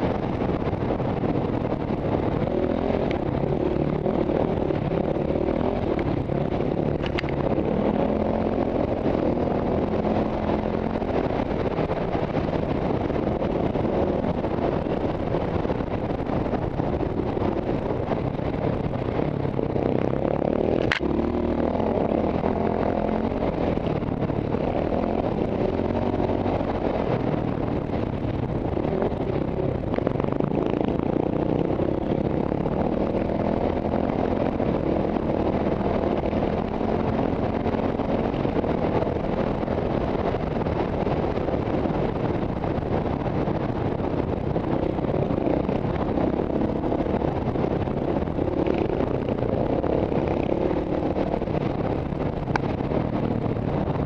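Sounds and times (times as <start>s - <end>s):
motorcycle engine revving: 0.0s - 54.0s.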